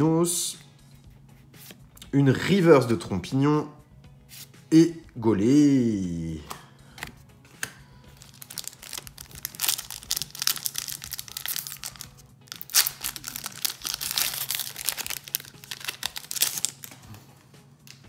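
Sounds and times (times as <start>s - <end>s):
foil wrapper crinkling and tearing: 8.2s - 16.9s.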